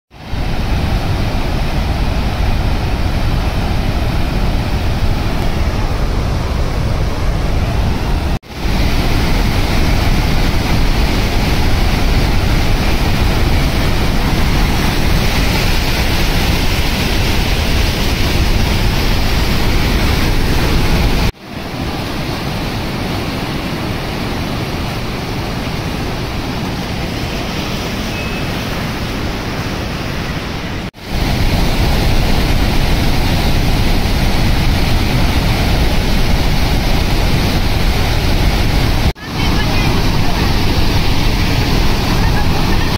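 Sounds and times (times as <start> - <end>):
rush of swollen river: 0.1 - 42.9
floodwater pouring over spillway: 8.4 - 29.0, 30.9 - 42.9.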